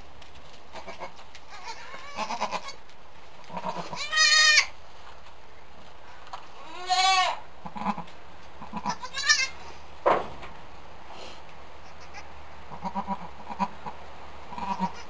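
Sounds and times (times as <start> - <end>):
goats bleating: 0.8 - 2.8, 3.4 - 4.7, 6.6 - 9.6, 14.5 - 15.0.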